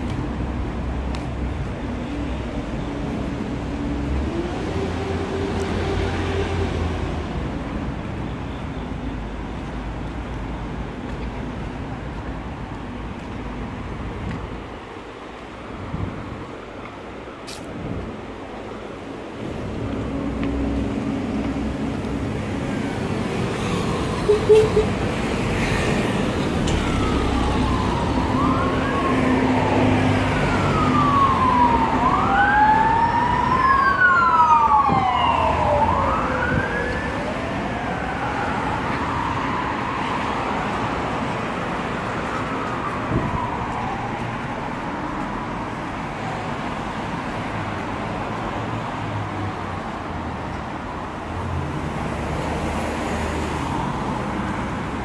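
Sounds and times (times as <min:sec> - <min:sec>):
road traffic noise: 0:00.0 - 0:55.0
emergency vehicle siren wailing: 0:02.2 - 0:07.6, 0:22.7 - 0:45.8.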